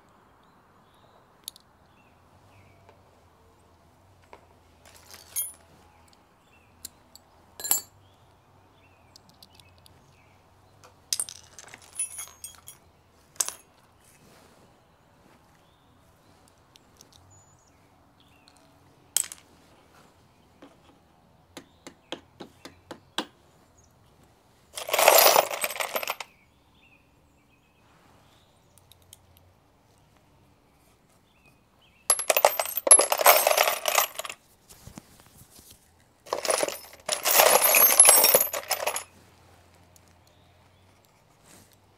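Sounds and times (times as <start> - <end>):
metal tools clinking: 4.9 - 5.7, 7.6 - 7.9, 11.1 - 13.7, 24.8 - 26.3, 32.1 - 34.4, 36.3 - 39.1
rattling jingling metal clatter: 4.9 - 5.7, 11.2 - 13.6, 24.8 - 26.3, 32.1 - 34.4, 36.3 - 39.1.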